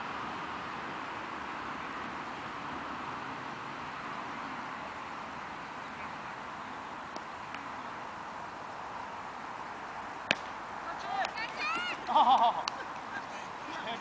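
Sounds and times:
outdoor background hiss: 0.0 - 14.0
cricket bat striking ball: 10.3 - 10.5.

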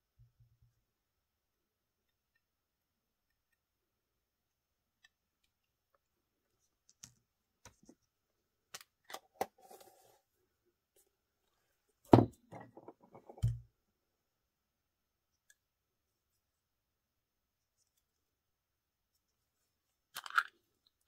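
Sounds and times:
loud thump on tabletop: 12.1 - 12.4.

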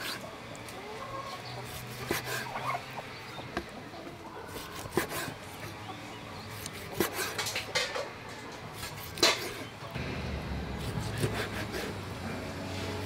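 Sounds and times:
chickens clucking: 0.0 - 10.0.

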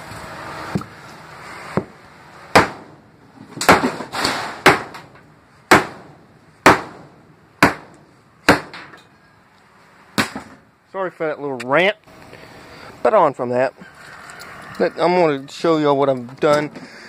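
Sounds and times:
hammer smashing plastic on concrete: 3.6 - 6.1.

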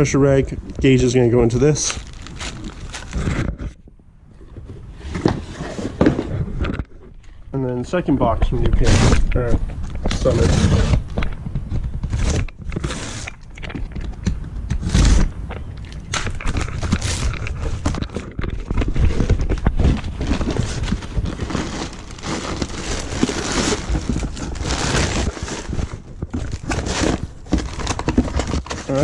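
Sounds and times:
packing material crinkling: 0.9 - 3.7, 14.8 - 29.0
cardboard rustling: 1.5 - 3.8, 4.4 - 7.4, 8.6 - 29.0.

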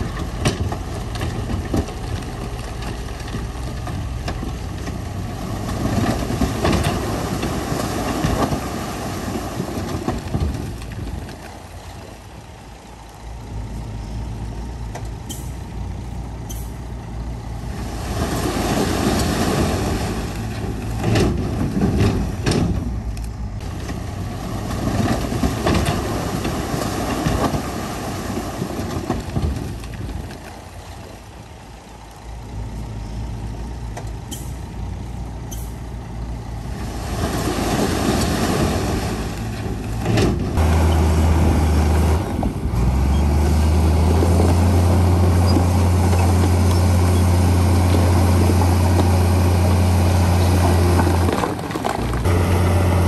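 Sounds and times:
heavy diesel machinery engine: 0.0 - 53.0.

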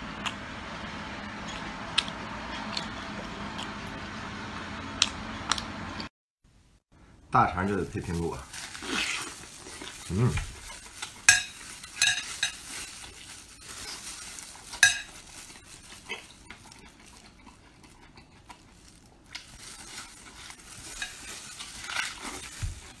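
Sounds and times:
slurping and chewing: 1.5 - 3.9, 8.6 - 23.0.

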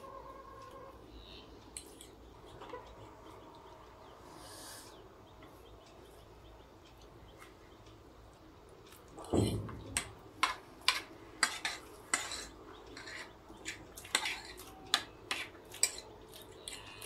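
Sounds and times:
fork clinking on a plate: 9.4 - 17.0.

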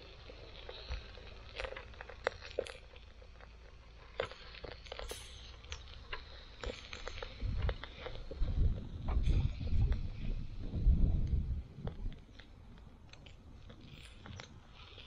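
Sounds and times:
wind buffeting microphone: 6.4 - 14.7.

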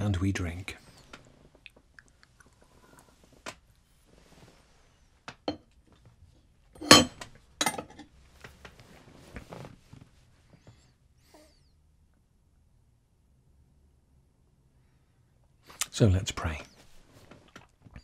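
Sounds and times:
metal cup clinking and knocking: 6.8 - 8.0.

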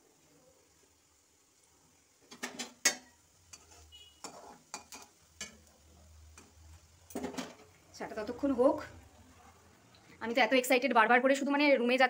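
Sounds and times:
metal spatula scraping a pan: 2.3 - 5.7.

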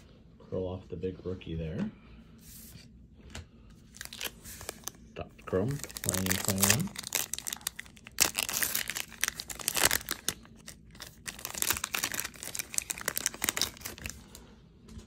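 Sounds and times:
foil wrapper tearing and crinkling: 4.0 - 5.0, 5.6 - 14.4.

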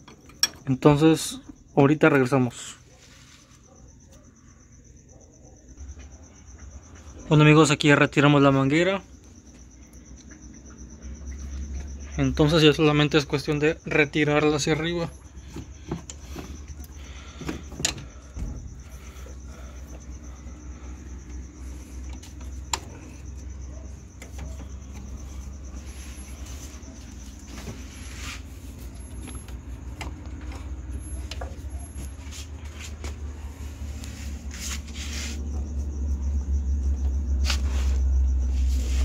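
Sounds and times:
tools clicking and knocking: 0.0 - 0.8
crickets chirping: 0.0 - 39.0.

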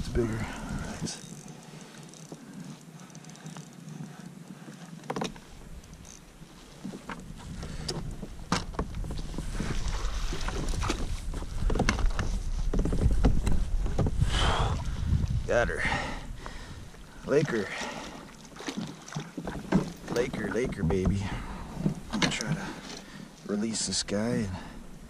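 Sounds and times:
water sloshing: 0.0 - 24.2
knocks against a kayak: 10.8 - 14.2, 18.8 - 22.4.

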